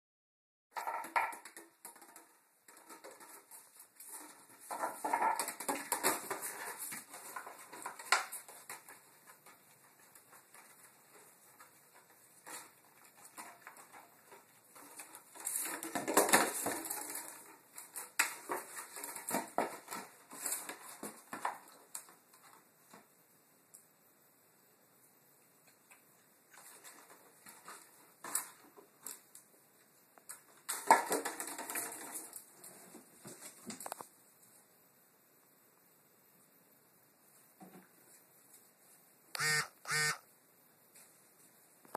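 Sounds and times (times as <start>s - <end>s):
plastic bottles crinkling on tile floor: 0.8s - 22.6s, 30.2s - 34.1s.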